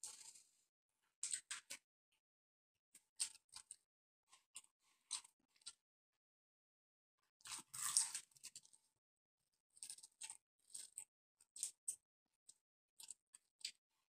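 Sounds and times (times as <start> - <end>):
crunchy bite of fried chicken: 7.4 - 8.7.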